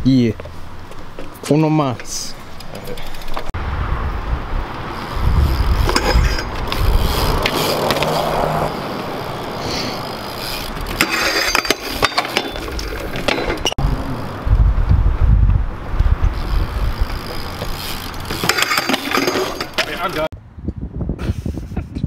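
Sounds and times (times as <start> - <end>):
bike tyres rolling over concrete: 4.3 - 20.3
bike knocks and clatters: 5.0 - 8.2, 10.1 - 20.3.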